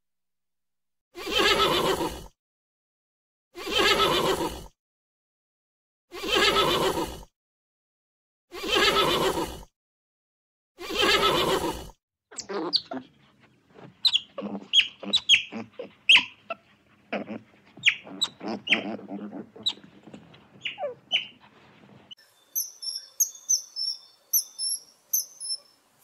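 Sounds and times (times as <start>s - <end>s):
horse whinnying: 1.2s - 2.3s, 3.6s - 4.7s, 6.2s - 7.2s, 8.6s - 9.6s, 10.8s - 13.0s, 14.1s - 21.4s
otters chirping and squeaking: 10.9s - 25.7s.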